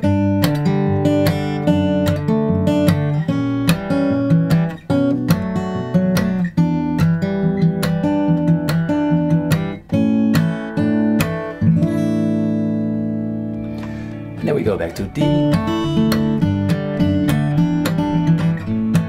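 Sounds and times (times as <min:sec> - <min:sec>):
fingerpicked acoustic guitar: 0:00.0 - 0:19.0
guitar chord strummed: 0:00.0 - 0:19.0
thumb slaps on guitar strings: 0:00.4 - 0:01.4, 0:02.0 - 0:02.2, 0:06.1 - 0:06.6, 0:15.5 - 0:19.0.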